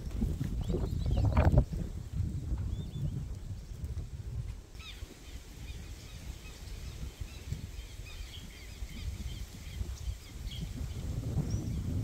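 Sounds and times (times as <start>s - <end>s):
small birds chirping: 0.4s - 1.6s, 4.8s - 12.0s.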